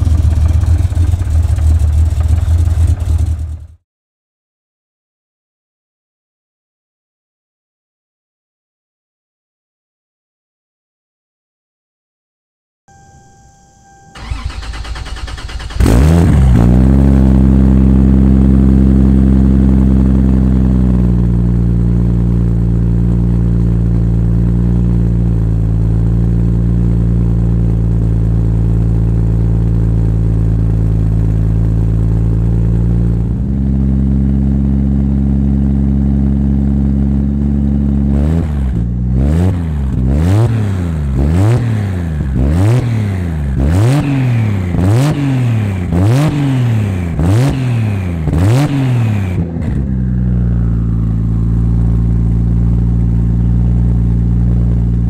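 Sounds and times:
car engine idling: 0:00.0 - 0:03.8, 0:13.8 - 0:38.0, 0:49.3 - 0:55.0
engine cranking on starter: 0:00.0 - 0:03.8, 0:14.0 - 0:16.8
engine revving blips: 0:12.9 - 0:18.0, 0:38.2 - 0:49.8.

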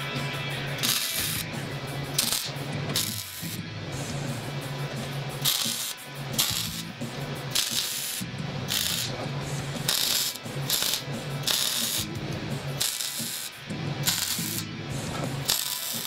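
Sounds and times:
welder arc crackling: 0:00.8 - 0:04.6, 0:05.2 - 0:16.0.

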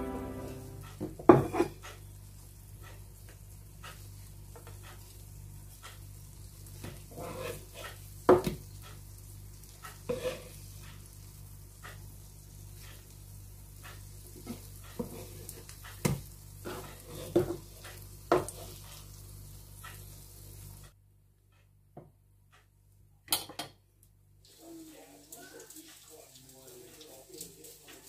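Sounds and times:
food sizzling in oil: 0:02.2 - 0:20.9
spatula scraping and knocking: 0:06.8 - 0:08.6, 0:09.9 - 0:10.6, 0:14.4 - 0:15.6, 0:16.6 - 0:18.9.

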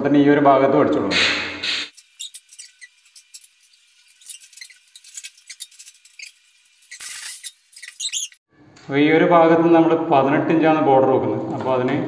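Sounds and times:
tools clicking and squeaking: 0:01.9 - 0:08.4.

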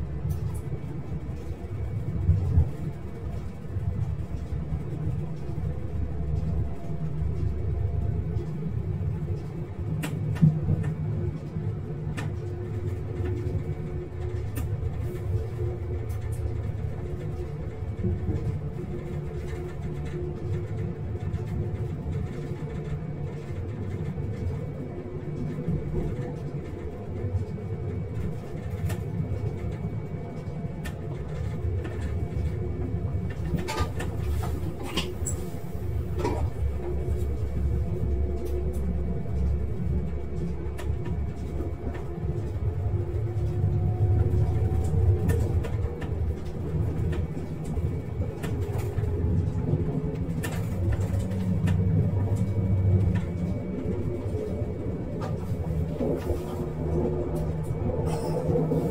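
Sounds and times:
railcar rumbling on track: 0:00.0 - 0:58.9
engine hum: 0:24.2 - 0:58.9.

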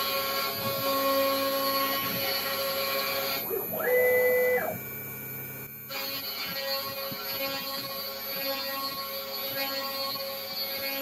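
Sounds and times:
steady machine hum: 0:00.0 - 0:11.0
stepper motors whining: 0:02.0 - 0:04.9.

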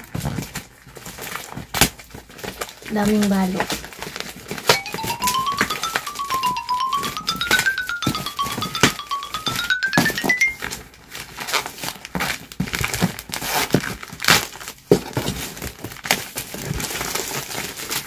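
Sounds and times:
plastic film crinkling and tearing: 0:00.0 - 0:04.6, 0:11.1 - 0:18.0
rising musical tone: 0:04.7 - 0:10.6.

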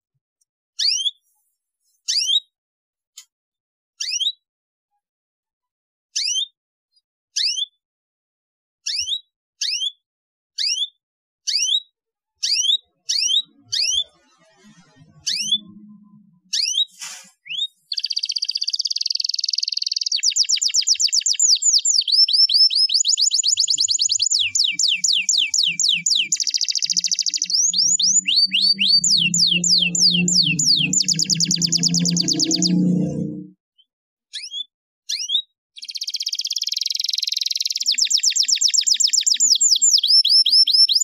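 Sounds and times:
canary chirping: 0:08.9 - 0:10.0, 0:10.6 - 0:10.9, 0:11.5 - 0:33.5, 0:34.3 - 0:41.0
canary song of rapid trills: 0:12.4 - 0:33.4, 0:34.4 - 0:41.0.

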